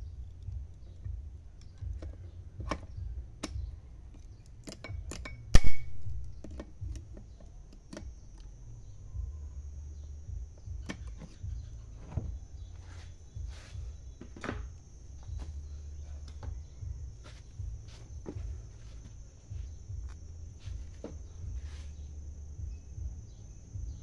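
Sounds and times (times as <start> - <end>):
steady low hum: 0.0 - 24.0
small metallic clicks and taps: 0.2 - 8.6
sharp loud metallic click: 4.7 - 6.3.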